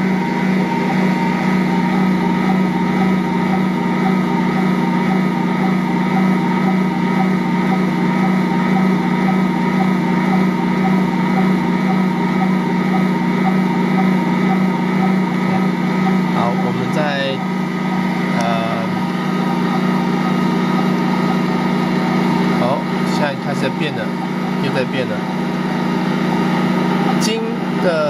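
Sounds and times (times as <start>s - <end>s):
stand mixer kneading dough: 0.0s - 28.0s.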